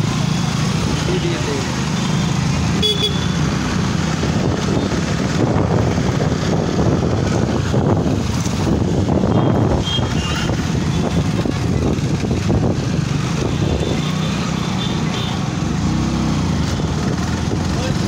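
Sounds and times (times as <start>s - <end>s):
motorcycle engine running: 0.0s - 18.0s
wind buffeting microphone: 4.1s - 14.0s.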